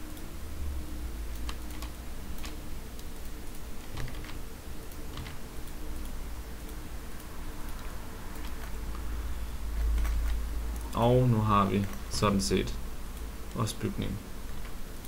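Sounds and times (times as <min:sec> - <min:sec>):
low hum: 0:00.0 - 0:15.0
mouse and keyboard clicks: 0:01.3 - 0:03.1, 0:03.8 - 0:05.8, 0:08.3 - 0:09.1.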